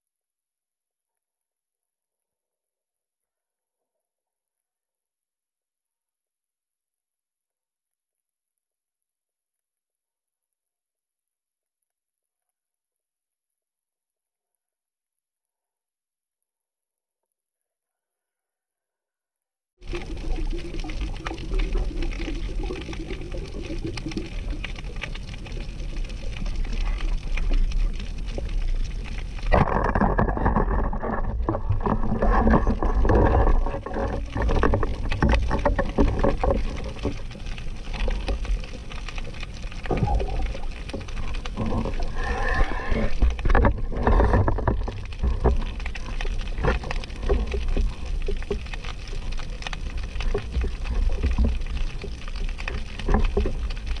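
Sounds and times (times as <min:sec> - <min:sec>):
muffled underwater water wash: 0:19.8 - 0:54.0.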